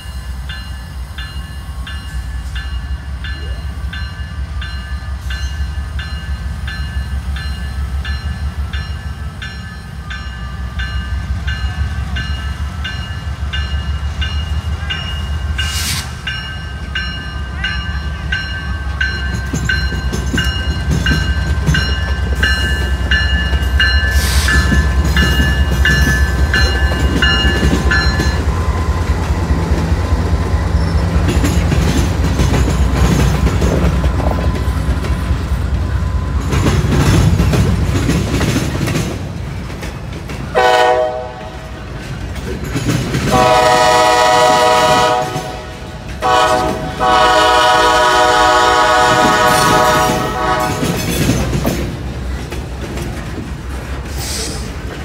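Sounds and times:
crossing bell ringing: 0:00.0 - 0:29.3
diesel locomotive rumble: 0:00.0 - 0:55.0
train wheels clacking over rails: 0:00.0 - 0:55.0.

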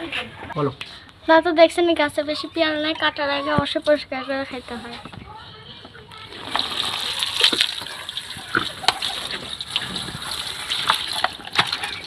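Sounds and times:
running water splashing: 0:06.2 - 0:12.0.

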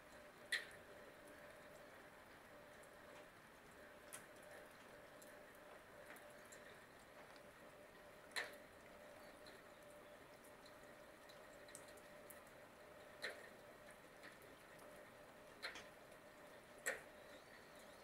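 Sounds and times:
faint background hum: 0:00.0 - 0:18.0
light ticks: 0:00.1 - 0:18.0.

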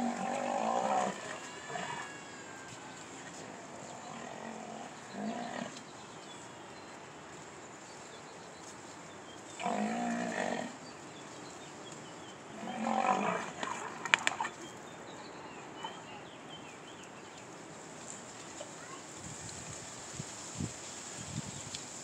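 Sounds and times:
rhinoceros calling: 0:00.0 - 0:05.8.

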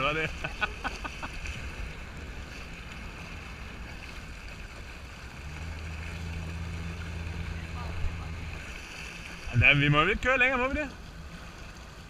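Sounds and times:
jet ski engine running: 0:00.0 - 0:12.0.

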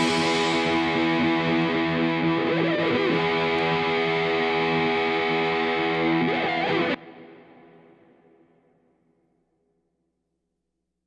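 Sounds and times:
held music chord: 0:00.0 - 0:02.3
sliding notes: 0:00.0 - 0:07.0.

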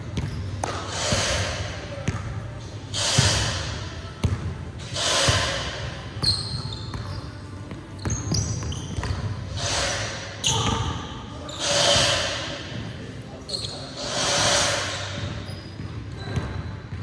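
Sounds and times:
sneakers squeaking: 0:00.0 - 0:17.0
basketball bouncing on wooden floor: 0:08.0 - 0:09.3.

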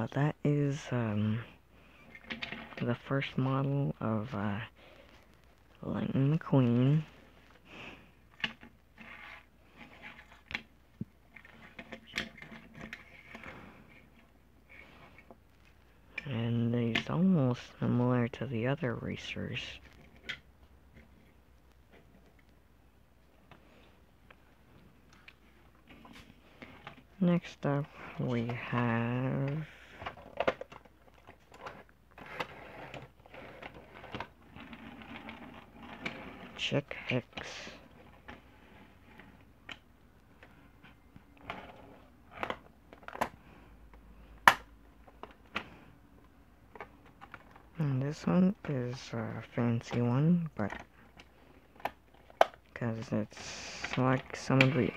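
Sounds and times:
plastic toys clicking and knocking: 0:08.3 - 0:14.2, 0:29.5 - 0:36.2
toy car scraping on wood: 0:08.9 - 0:10.5, 0:31.6 - 0:36.7.

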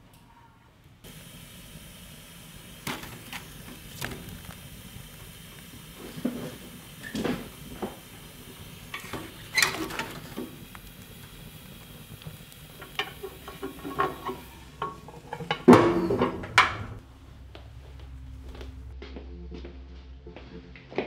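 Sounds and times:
poker clinking in wood stove: 0:02.8 - 0:17.0.

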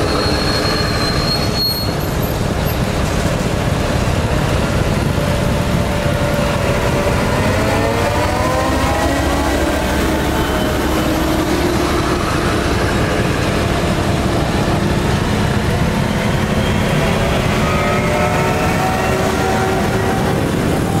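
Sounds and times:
diesel engine running: 0:02.0 - 0:17.6.

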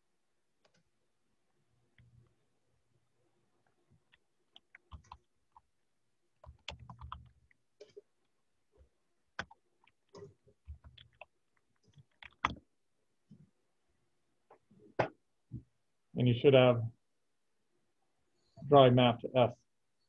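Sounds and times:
keyboard typing: 0:03.6 - 0:05.7, 0:06.4 - 0:08.1, 0:09.4 - 0:12.7.

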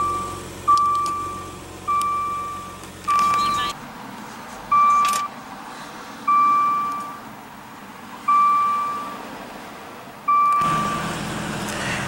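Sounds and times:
car warning chime: 0:00.0 - 0:03.8, 0:04.7 - 0:05.3, 0:06.3 - 0:07.2, 0:08.3 - 0:09.2, 0:10.3 - 0:11.1.

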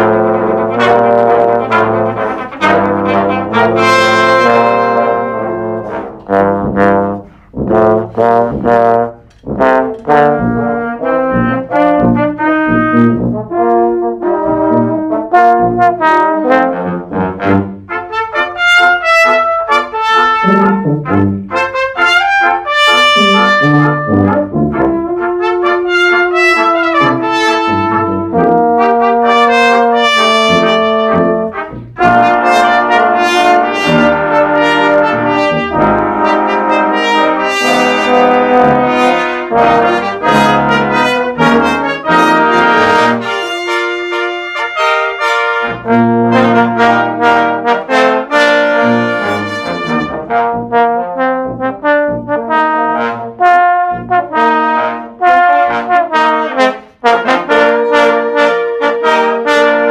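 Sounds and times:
brass ensemble playing: 0:00.0 - 0:59.9.

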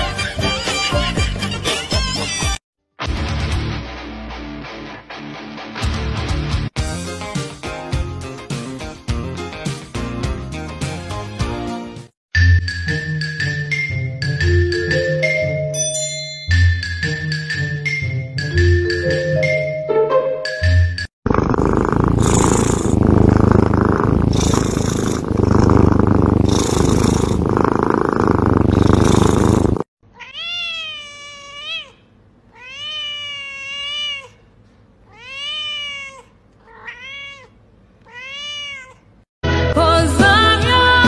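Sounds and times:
cat purring loudly: 0:21.2 - 0:29.9
cat meowing: 0:30.1 - 0:34.4, 0:35.1 - 0:39.1.

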